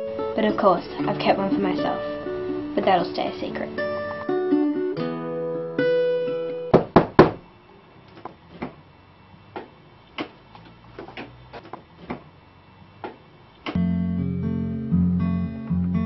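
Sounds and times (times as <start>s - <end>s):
sharp knocks: 6.7s - 7.4s.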